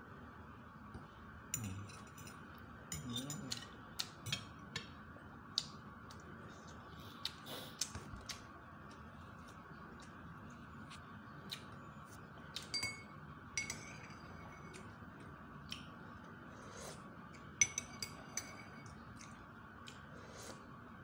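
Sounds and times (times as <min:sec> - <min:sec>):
cutlery clinking on a ceramic plate: 0:01.6 - 0:03.7, 0:12.6 - 0:14.7.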